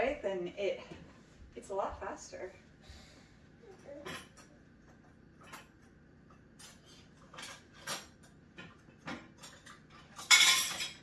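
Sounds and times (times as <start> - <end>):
dishes clinking: 3.8 - 11.0.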